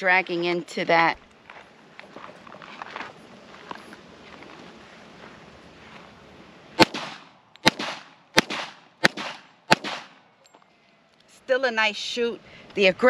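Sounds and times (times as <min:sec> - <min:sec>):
pistol shots with short echo: 0:06.8 - 0:10.2.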